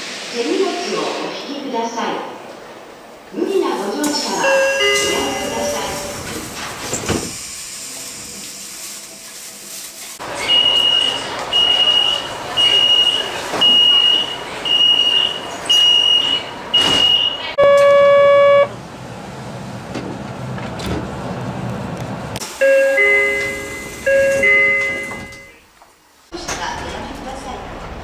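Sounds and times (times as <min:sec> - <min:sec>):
train rumbling quietly: 0:00.0 - 0:28.0
high door-closing alarm beeps: 0:04.4 - 0:06.3, 0:10.6 - 0:18.7, 0:22.6 - 0:25.6
door buzzer: 0:14.9 - 0:18.7
two-note falling door chime: 0:22.6 - 0:25.5.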